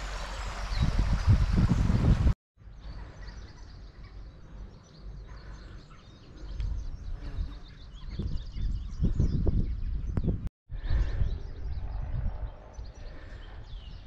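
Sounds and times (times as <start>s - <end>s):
stream running over stones: 0.0s - 2.4s
wind gusts on microphone: 0.0s - 2.4s, 6.4s - 14.0s
small birds chirping: 0.2s - 14.0s.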